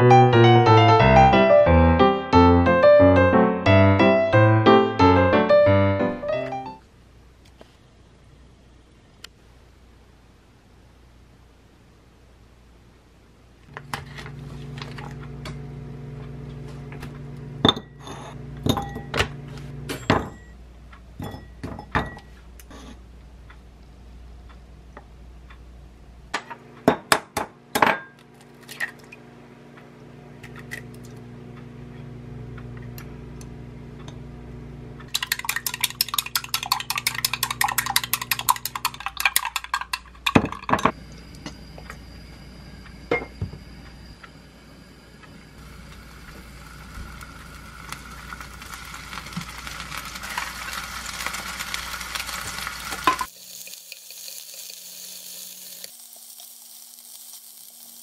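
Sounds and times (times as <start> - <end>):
steady low hum: 6.8 - 50.2
dishes clinking: 17.6 - 19.3, 21.2 - 23.0, 35.2 - 41.9
eggs beaten rapid clicking: 35.1 - 40.7, 46.9 - 55.0
eggs cracking: 35.1 - 40.9, 45.9 - 57.4.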